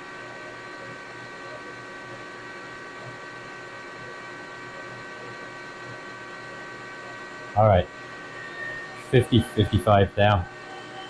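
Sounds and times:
high-pitched drive tones: 7.6s - 11.0s.

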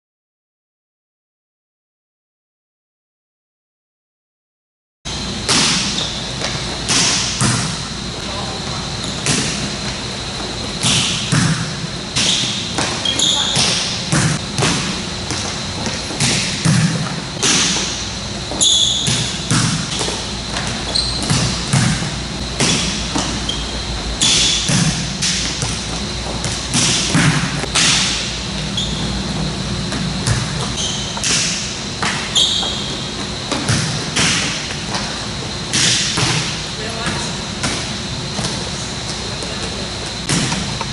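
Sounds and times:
balls bouncing on court: 5.4s - 40.9s
shoes squeaking on floor: 5.8s - 6.8s, 8.3s - 11.2s, 12.2s - 14.0s, 18.4s - 21.8s, 22.6s - 24.7s, 28.6s - 31.4s, 32.1s - 33.5s
volleyball hit off forearms: 18.9s - 23.4s, 24.2s - 28.3s.

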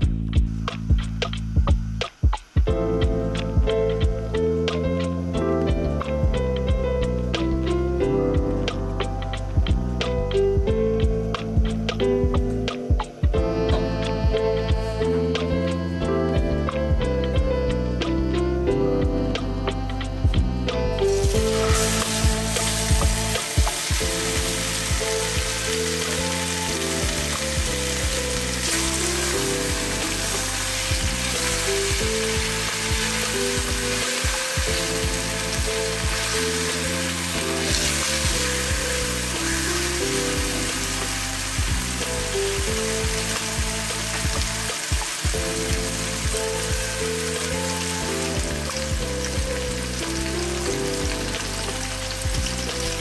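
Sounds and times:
background music: 0.0s - 53.0s
meat sizzling in a frying pan: 21.0s - 53.0s.

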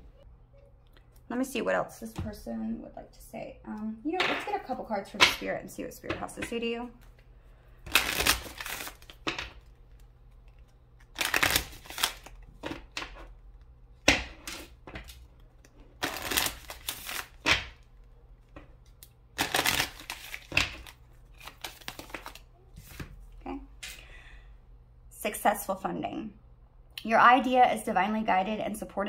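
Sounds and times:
cards being shuffled: 7.9s - 17.8s, 18.4s - 23.1s
cards snapping: 10.4s - 13.2s.

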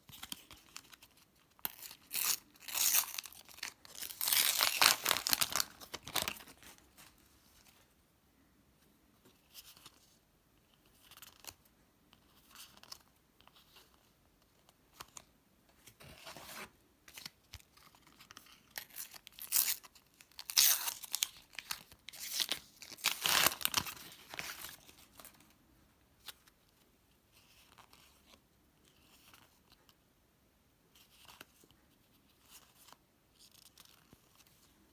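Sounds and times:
soft rustles of stickers: 0.0s - 8.0s, 8.7s - 30.0s, 30.8s - 34.9s
paper wrapper ripping and crinkling: 0.1s - 7.0s, 18.4s - 25.3s.

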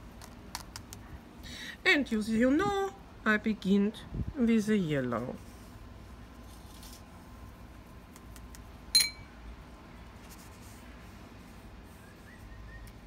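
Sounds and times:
ringing glass clink: 8.9s - 9.3s
wet brush strokes on paper: 10.1s - 12.5s.

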